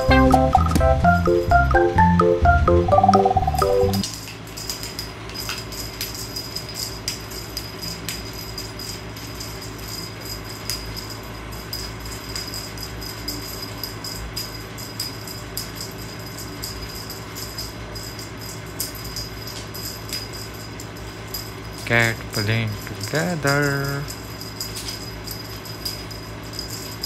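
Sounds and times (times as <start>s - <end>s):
cat toy jingling clicks: 4.0s - 27.0s
steady low hum: 5.7s - 27.0s.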